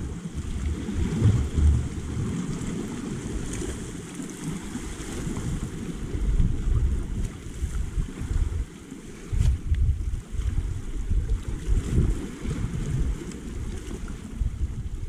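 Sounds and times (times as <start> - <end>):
low rumble: 0.0 - 3.5
small waves against rocks: 0.0 - 14.9
wind buffeting microphone: 0.0 - 15.0.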